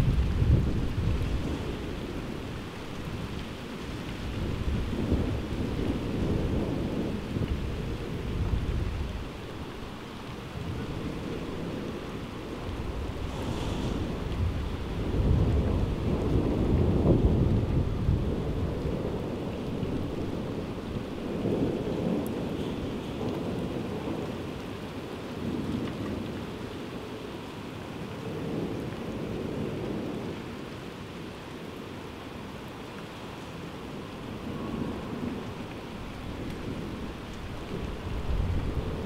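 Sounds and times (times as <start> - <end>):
rolling thunder: 0.0 - 2.4, 10.6 - 24.4
steady rain: 0.0 - 39.0.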